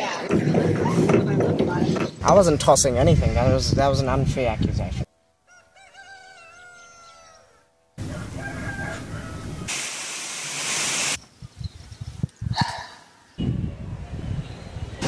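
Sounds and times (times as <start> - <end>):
rooster crowing: 5.4 - 9.7
steady outdoor noise: 7.8 - 15.0
loud rushing hiss: 8.0 - 11.2.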